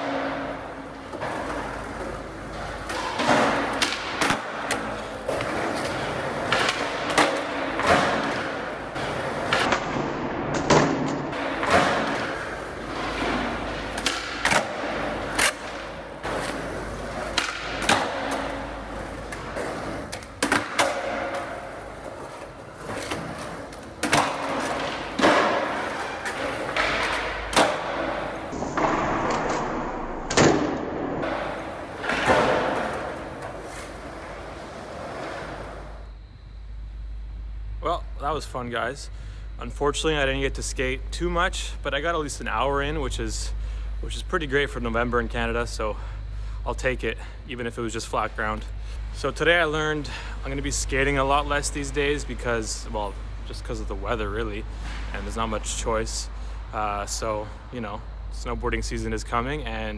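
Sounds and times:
skateboard wheels rolling on concrete: 0.0 - 38.5, 46.8 - 59.9
skateboard pops and landings: 2.8 - 18.4, 24.0 - 35.8.

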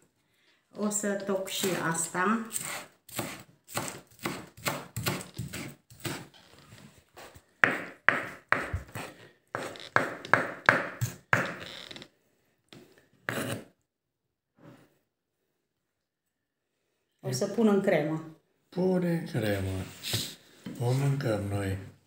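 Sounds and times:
knife chopping on wooden board: 2.5 - 6.3, 7.6 - 11.6.

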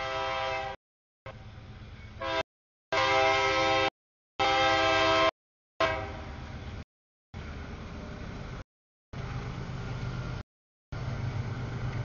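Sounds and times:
locomotive air horn blasts: 0.0 - 0.8, 2.2 - 6.4
low train rumble: 0.0 - 6.8, 7.4 - 8.6, 9.2 - 12.0.

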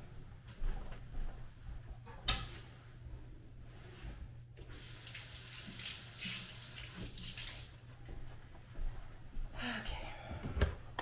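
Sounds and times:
tap running water into sink: 4.7 - 7.8.

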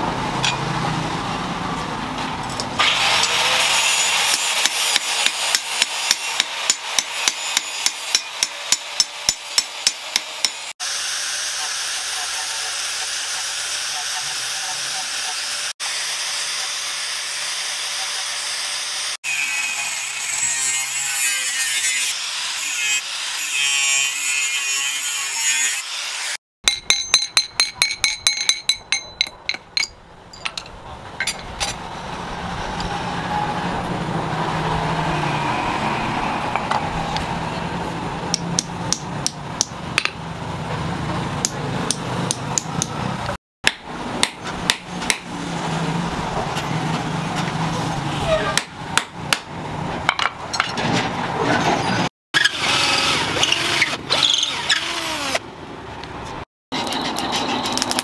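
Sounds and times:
hammer striking metal: 0.4 - 0.7, 4.2 - 10.7, 26.6 - 31.8, 38.3 - 40.2, 43.6 - 45.3, 48.6 - 49.5.

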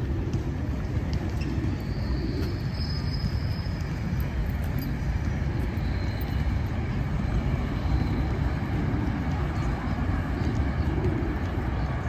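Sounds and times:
wind buffeting microphone: 0.0 - 12.0
faint high whistles: 1.3 - 4.9, 5.5 - 6.8.

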